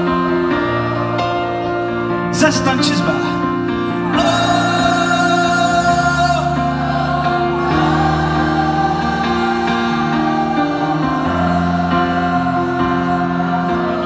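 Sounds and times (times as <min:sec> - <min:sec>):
keyboard chords: 0:00.0 - 0:14.0
man singing: 0:04.1 - 0:06.8.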